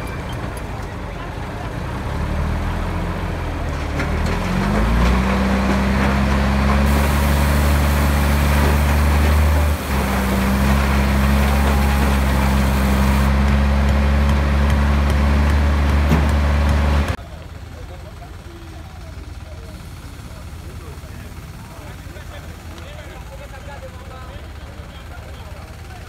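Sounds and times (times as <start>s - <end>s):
diesel truck engine revving: 1.7s - 17.2s.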